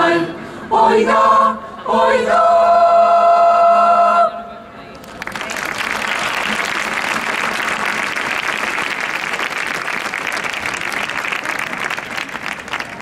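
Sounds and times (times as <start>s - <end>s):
crowd applauding: 5.0s - 13.0s.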